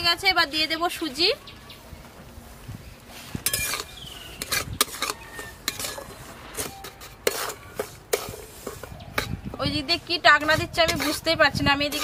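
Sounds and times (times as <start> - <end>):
metal spatula scraping pan: 3.2 - 12.0.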